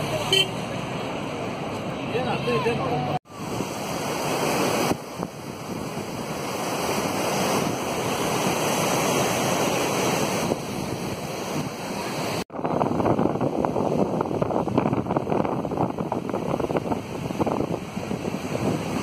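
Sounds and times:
river rushing in rapids: 0.0s - 12.4s
wind buffeting microphone: 3.3s - 9.5s, 10.1s - 19.0s.

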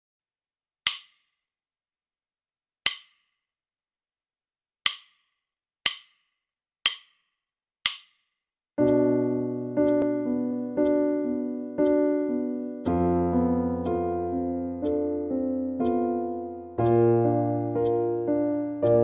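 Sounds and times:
sharp count-in clicks: 0.9s - 1.3s, 2.8s - 3.3s, 4.8s - 13.0s, 13.8s - 17.1s, 17.8s - 18.1s
electric piano chord: 8.8s - 19.0s.

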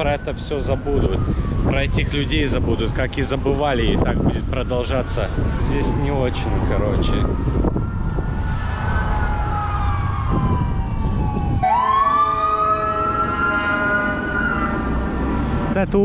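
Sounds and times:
emergency siren wailing: 0.0s - 15.8s
low rumble: 5.2s - 11.6s.

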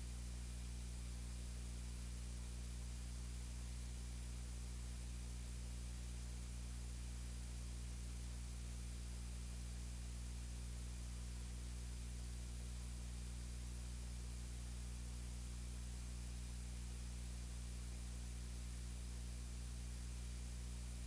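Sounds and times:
constant hiss: 0.0s - 21.0s
low electrical hum: 0.0s - 21.0s.

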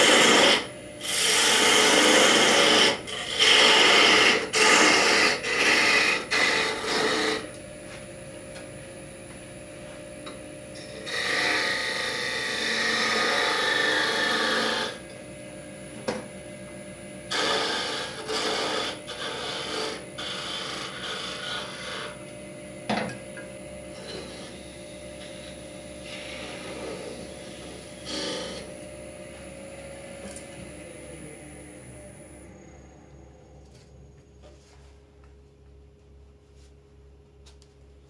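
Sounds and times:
turning tool scraping wood: 0.0s - 7.5s, 10.8s - 15.0s, 17.3s - 22.2s, 23.9s - 28.7s
wood lathe humming: 0.0s - 7.6s, 10.2s - 15.2s, 17.3s - 22.4s, 23.9s - 32.6s.

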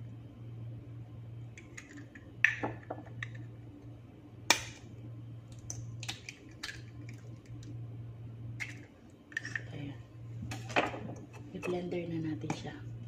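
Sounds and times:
eggshells cracking: 5.5s - 7.7s.

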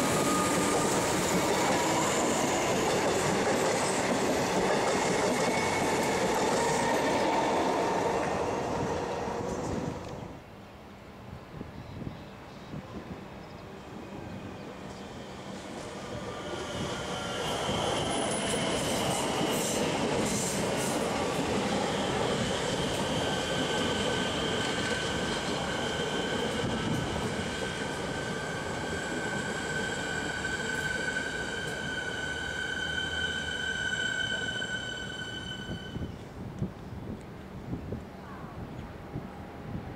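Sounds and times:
electric train rumbling past: 0.0s - 10.5s, 13.0s - 37.7s
high-pitched squeal: 27.7s - 36.2s.

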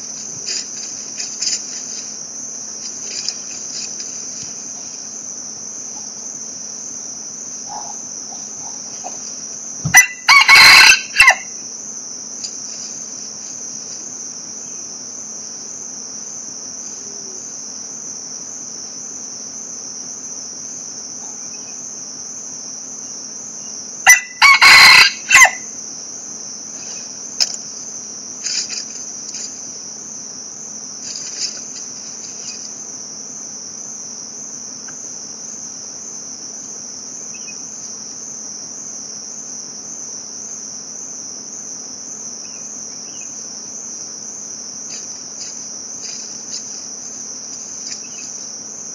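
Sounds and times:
high-pitched insect drone: 0.0s - 48.9s
rooster crowing: 9.9s - 11.6s, 24.0s - 25.7s.

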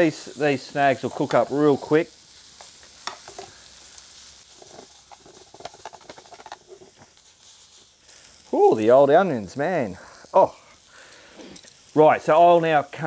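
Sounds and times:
sausages and onions sizzling in pan: 0.0s - 13.0s
metal tongs scraping a pan: 2.6s - 3.6s, 4.4s - 7.8s.

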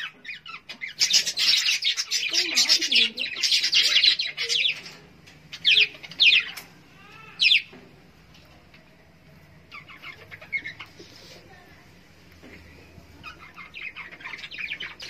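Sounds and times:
budgerigars chattering: 0.0s - 6.6s, 9.7s - 11.3s, 13.2s - 15.0s.

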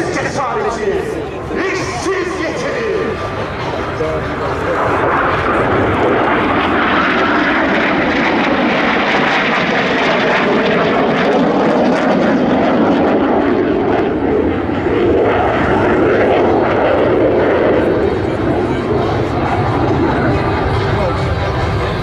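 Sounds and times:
jet engines flying overhead: 0.0s - 22.0s.

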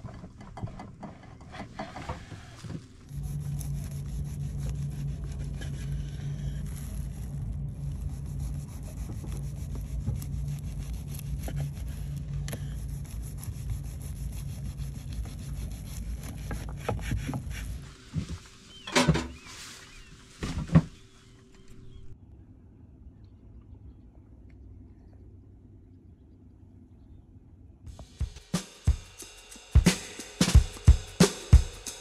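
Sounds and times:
low hum: 0.0s - 28.0s
knife sawing crunchy bread: 3.1s - 17.8s.

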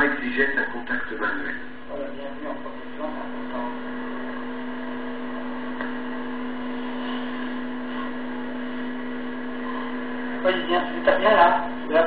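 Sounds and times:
continuous hiss: 0.0s - 8.8s
steady electrical hum: 0.0s - 12.0s.

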